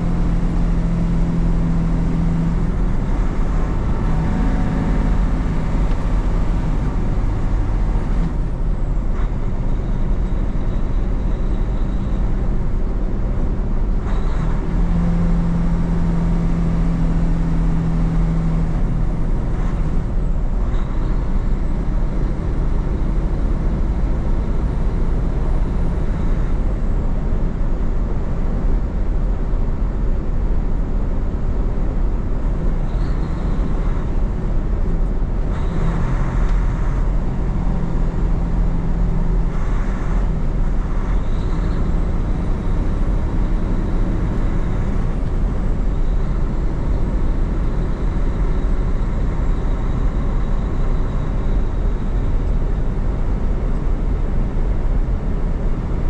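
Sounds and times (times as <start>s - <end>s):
diesel truck engine drone: 0.0s - 56.0s.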